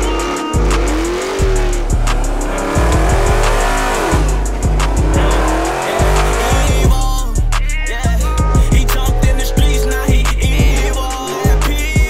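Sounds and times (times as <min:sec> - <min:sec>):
sliding tones: 0:00.0 - 0:06.9
hi-hat ticks: 0:00.0 - 0:12.0
hip hop beat with booming bass: 0:00.0 - 0:12.0.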